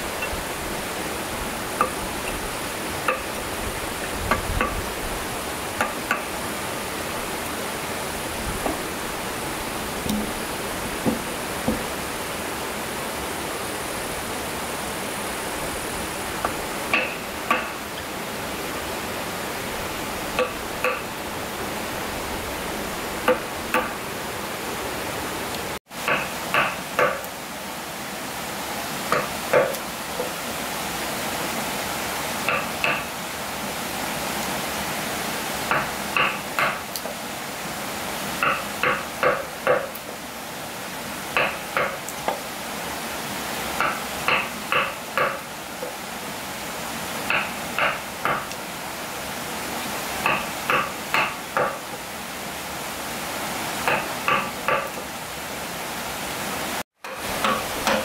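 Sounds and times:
hammer striking nails into wood: 0:47.3 - 0:48.5.

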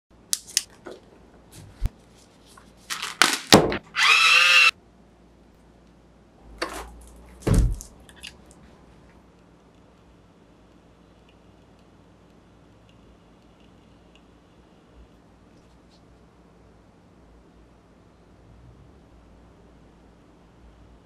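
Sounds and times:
tape measure retracting whirr: 0:03.8 - 0:04.7
heavy thump: 0:07.4 - 0:07.9.

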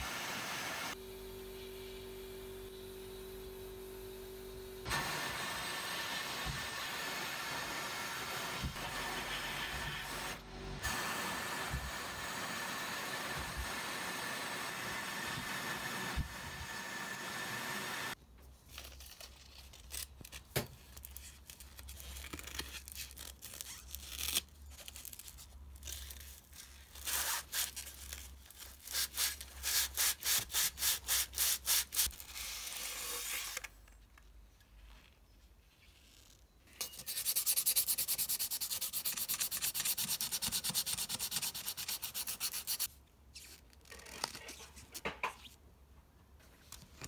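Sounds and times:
sandpaper rubbing on brass: 0:36.8 - 0:42.9.

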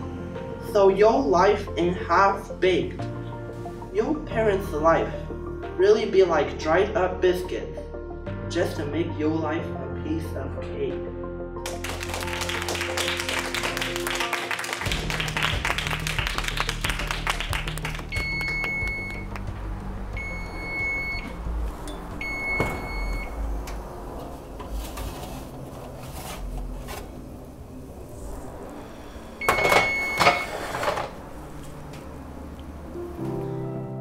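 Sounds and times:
oven timer beeping: 0:18.2 - 0:19.3, 0:20.2 - 0:21.3, 0:21.9 - 0:23.4, 0:29.4 - 0:30.9.

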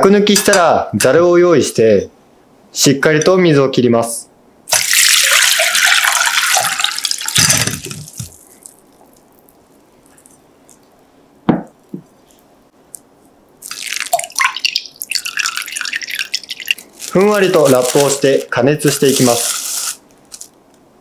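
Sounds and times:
knock: 0:11.5 - 0:12.0
water splashing into glass bowl: 0:13.6 - 0:16.8
water dripping from strainer: 0:13.6 - 0:17.2.

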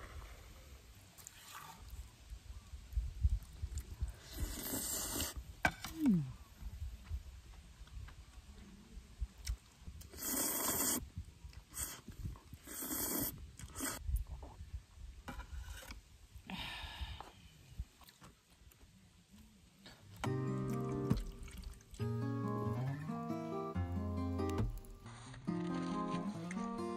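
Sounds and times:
noodles being slurped: 0:10.0 - 0:14.0
acoustic guitar music: 0:20.2 - 0:26.9.

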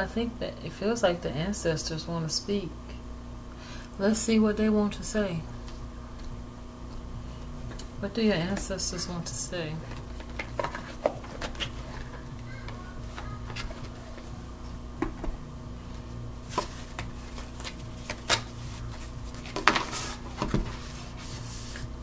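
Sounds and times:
low hum: 0:00.0 - 0:22.0
cards shuffling by hand: 0:09.8 - 0:12.4, 0:16.4 - 0:21.9.

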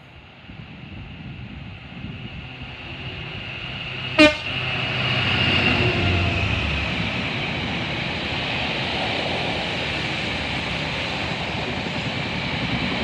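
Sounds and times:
train wagons rumbling on rails: 0:00.0 - 0:13.0
locomotive horn toot: 0:04.2 - 0:04.6.

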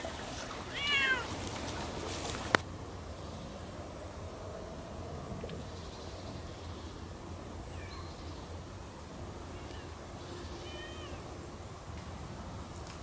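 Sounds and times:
cat meowing: 0:00.7 - 0:01.3, 0:10.6 - 0:11.2.

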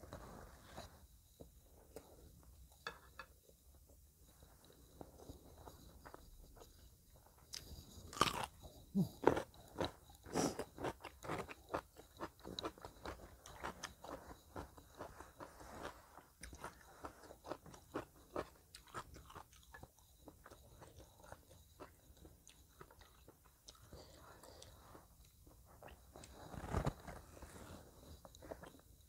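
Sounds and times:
crunchy chewing of cucumber: 0:07.5 - 0:28.8.

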